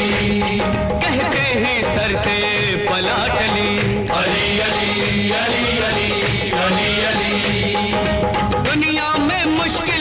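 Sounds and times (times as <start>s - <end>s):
person singing wavering melody: 3.2s - 8.1s.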